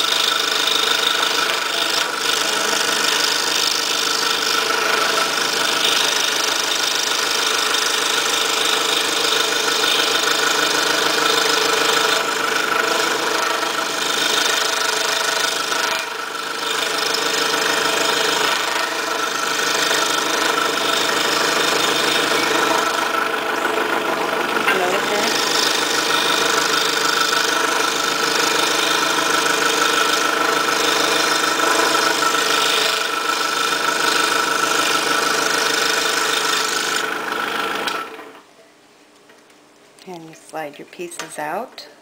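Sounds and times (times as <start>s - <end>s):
scroll saw cutting plywood: 0.0s - 38.4s.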